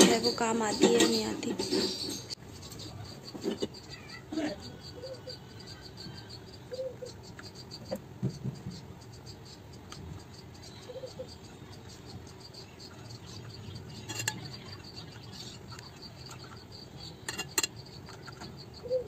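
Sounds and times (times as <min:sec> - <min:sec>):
metal spoon clinking on pan: 0:14.0 - 0:14.5, 0:17.3 - 0:17.8.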